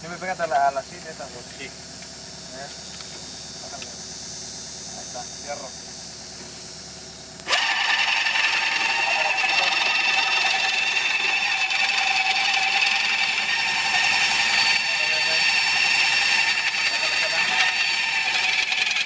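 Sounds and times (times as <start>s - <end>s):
earth auger whining: 7.4s - 19.0s.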